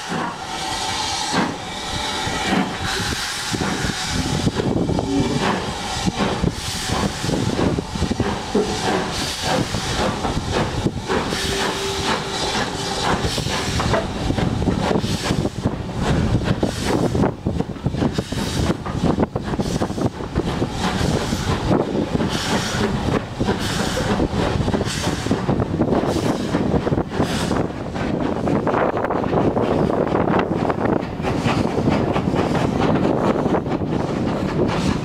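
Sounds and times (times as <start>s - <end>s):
hiss of steam: 0.0s - 17.3s, 17.9s - 27.7s
locomotive wheels knocking on track: 3.5s - 35.0s.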